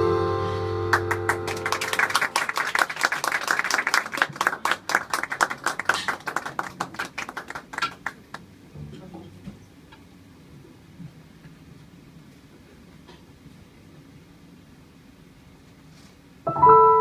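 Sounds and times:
audience applauding: 0.9s - 8.5s.

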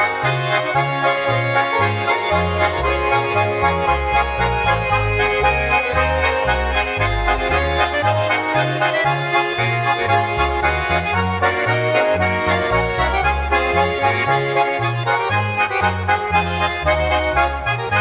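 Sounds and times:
bass line: 0.0s - 18.0s
button accordions playing folk tune: 0.0s - 18.0s.

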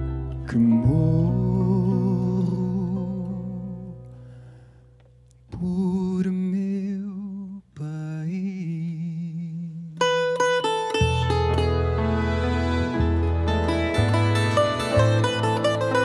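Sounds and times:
plucked guitar notes: 0.0s - 5.6s, 10.0s - 16.0s
man singing wordless held notes: 0.4s - 4.2s, 5.5s - 10.0s.

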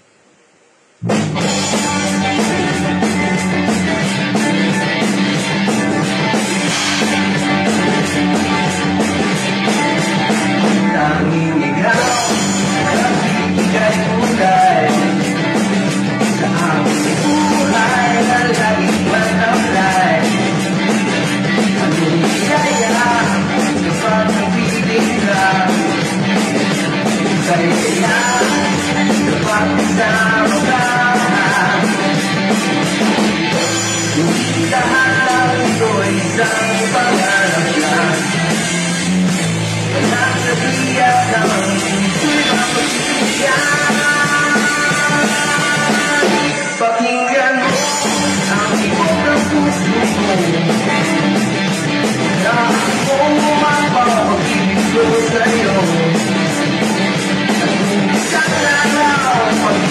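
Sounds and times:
drum kit beating: 0.9s - 59.9s
rock song: 0.9s - 59.9s
person singing: 1.0s - 39.1s, 39.7s - 59.9s.

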